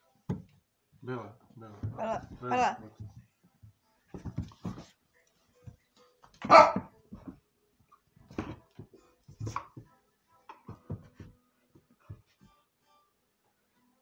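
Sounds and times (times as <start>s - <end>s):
dog barking: 6.4s - 6.9s.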